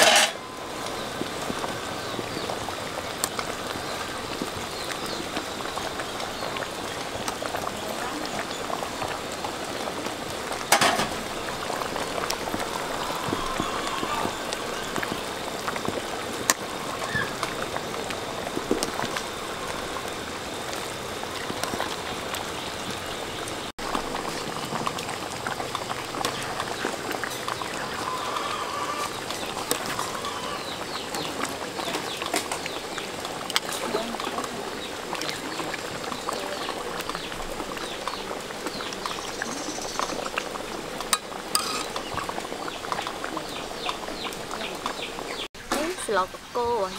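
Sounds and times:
metal ladle clinking on pot: 0.0 - 0.4, 41.2 - 41.9
soup bubbling: 0.0 - 46.9.

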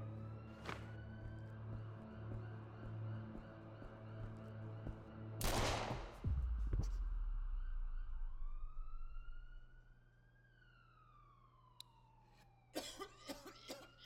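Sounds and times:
distant police siren wailing: 0.0 - 5.4, 6.2 - 14.0
gunshot low rumble: 5.4 - 7.0.

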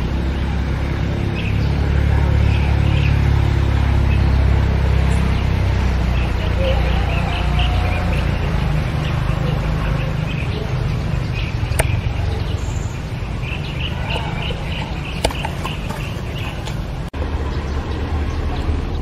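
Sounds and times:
birds chirping: 0.0 - 19.0
sharp clicks: 11.7 - 12.0.

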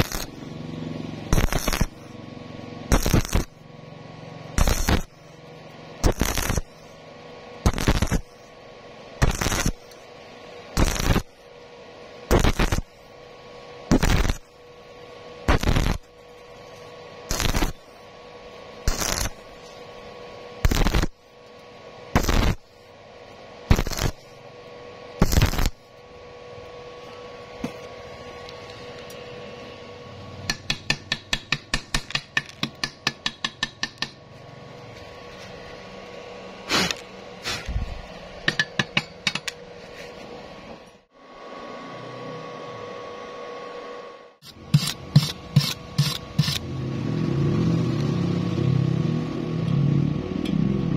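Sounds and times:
welding arc crackling: 0.0 - 7.0, 7.6 - 10.1, 10.7 - 11.5, 12.2 - 13.0, 13.9 - 22.9, 23.6 - 24.4, 25.2 - 25.9, 44.4 - 46.7
chipping hammer tapping metal: 30.4 - 34.2, 38.4 - 39.6.

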